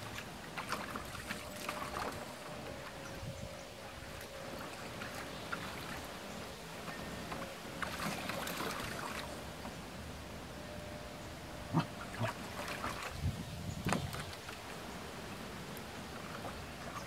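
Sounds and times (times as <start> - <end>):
water splashing in a plastic pool: 0.0 - 3.2, 3.8 - 10.2, 11.7 - 17.0.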